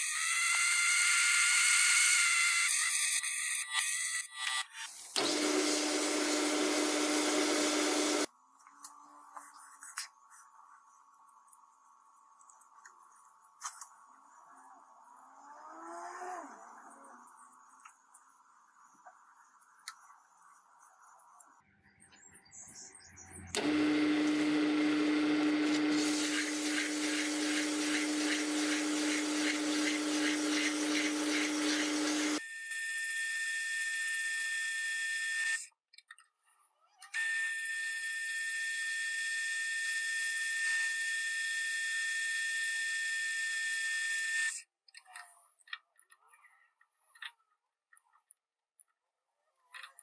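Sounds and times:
high-pitched power tool whine: 0.0 - 8.3, 23.6 - 35.7, 37.2 - 44.6
power tool motor grinding: 0.0 - 8.3, 23.6 - 35.6.

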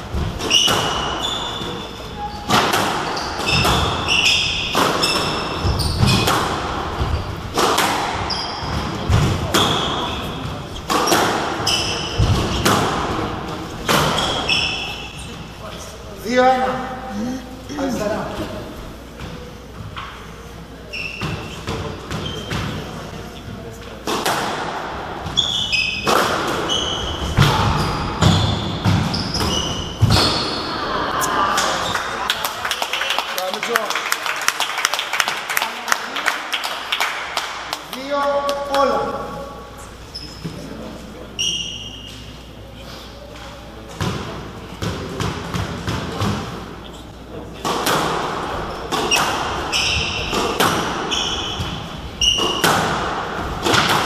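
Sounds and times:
squash ball hits echoing: 0.0 - 1.9, 2.5 - 15.1, 24.0 - 30.9, 43.9 - 46.7, 47.6 - 54.0
shoes squeaking on wooden floor: 0.1 - 7.6, 8.2 - 12.8, 13.8 - 15.4, 20.9 - 22.9, 25.2 - 30.7, 48.6 - 52.8.

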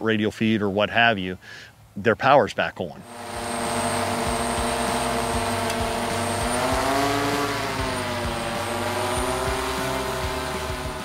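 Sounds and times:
drone rotors whining: 3.0 - 11.0.

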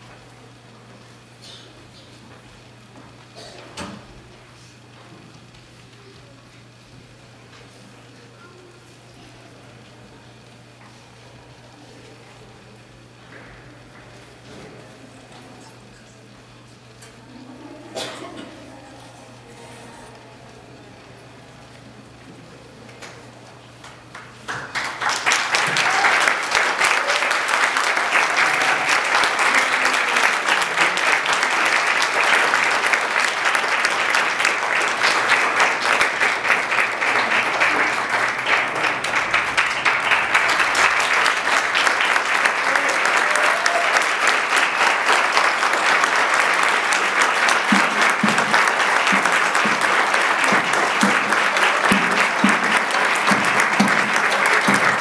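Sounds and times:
audience applause: 17.1 - 55.0.

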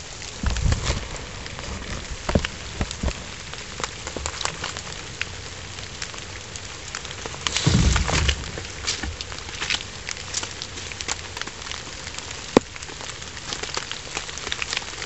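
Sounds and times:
rain pattering: 0.0 - 15.0
footsteps through wet leaves: 7.2 - 12.3.

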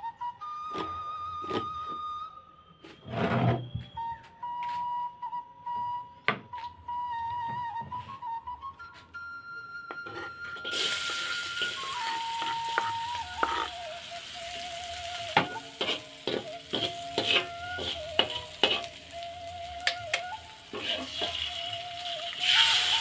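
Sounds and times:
metal spatula scraping a wok: 10.0 - 14.0, 14.7 - 19.2, 20.6 - 23.0
food sizzling in hot oil: 10.7 - 23.0.

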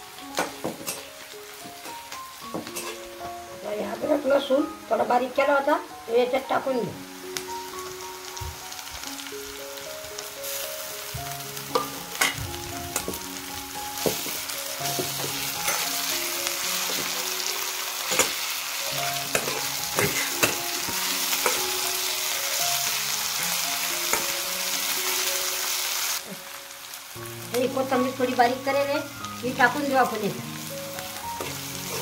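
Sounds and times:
onions and garlic sizzling in oil: 0.0 - 32.0
metal spatula scraping pan: 19.3 - 20.6.

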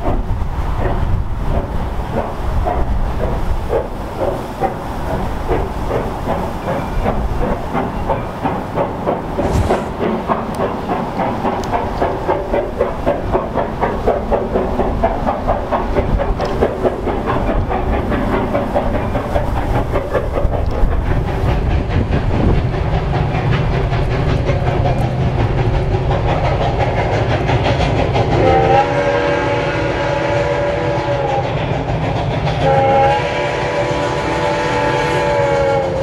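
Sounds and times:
steam locomotive chugging: 0.0 - 36.0
steam whistle: 28.4 - 31.5, 32.6 - 36.0.

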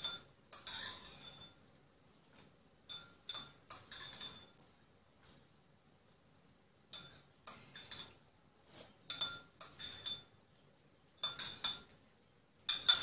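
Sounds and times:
spoon clinking against a bowl: 0.0 - 1.7, 2.8 - 4.7, 6.9 - 8.2, 9.0 - 10.4, 11.2 - 12.0, 12.6 - 13.0.

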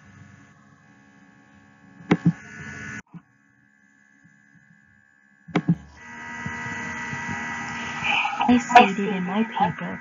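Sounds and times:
loud thumps: 2.0 - 2.4, 5.5 - 7.5.

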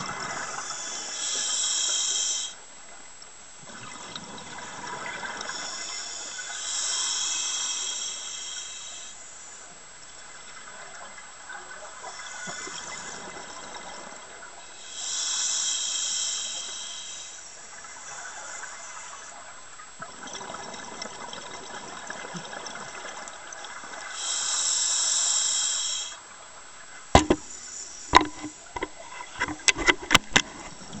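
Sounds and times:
steady hiss: 0.0 - 20.0, 22.0 - 31.0
sharp clicks and knocks: 27.2 - 27.5, 28.1 - 30.8.

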